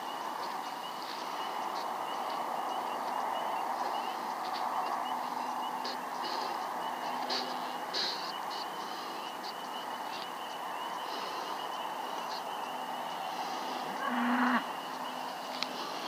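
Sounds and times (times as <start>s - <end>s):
faint chirps: 0.0s - 16.0s
insect trill: 0.0s - 16.0s.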